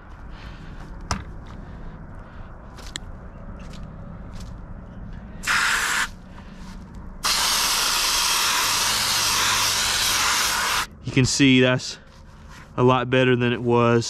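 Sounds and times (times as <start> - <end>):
hose nozzle spraying water: 5.4 - 6.1, 7.2 - 10.9.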